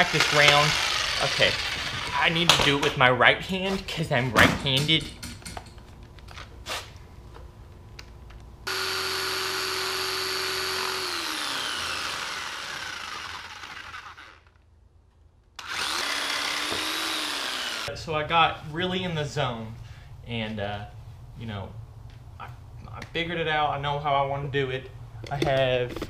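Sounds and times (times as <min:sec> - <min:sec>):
electric jigsaw motor whining: 0:00.0 - 0:02.4, 0:08.7 - 0:14.6, 0:15.6 - 0:17.9.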